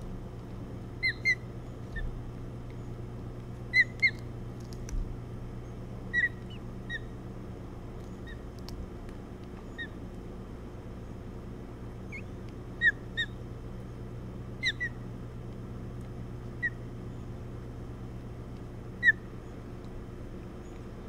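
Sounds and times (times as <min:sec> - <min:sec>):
steady low hum: 0:00.0 - 0:21.0
ospreys chirping: 0:00.9 - 0:02.2, 0:03.7 - 0:04.3, 0:05.6 - 0:07.2, 0:09.6 - 0:10.0, 0:12.0 - 0:13.4, 0:14.6 - 0:15.1, 0:16.5 - 0:17.4, 0:19.0 - 0:19.7.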